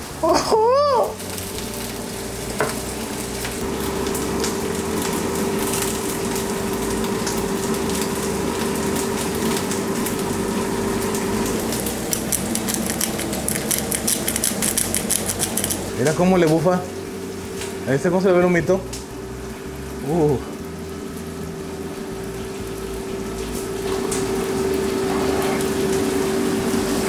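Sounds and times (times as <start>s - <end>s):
steady hum: 0.0s - 27.0s
vegetables sizzling in a skillet: 0.0s - 27.0s
rapid fine crackle: 0.3s - 16.0s.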